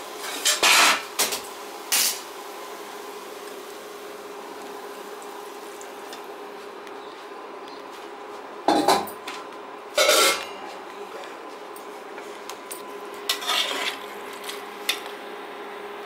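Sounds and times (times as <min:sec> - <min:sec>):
metal spoon scraping metal pot: 0:13.3 - 0:14.6.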